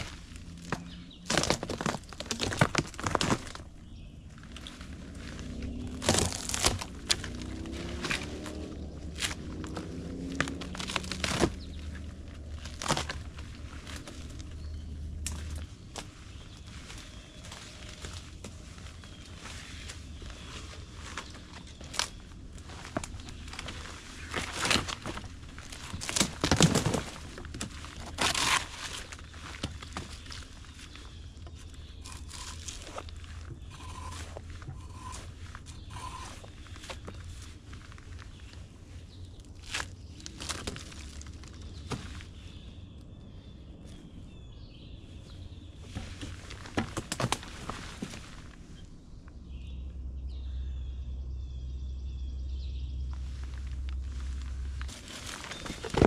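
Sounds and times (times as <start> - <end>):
twigs snapping: 0.0 - 42.7, 45.9 - 48.6, 53.1 - 56.0
footsteps crunching through dry brush: 0.0 - 49.1, 52.9 - 56.0.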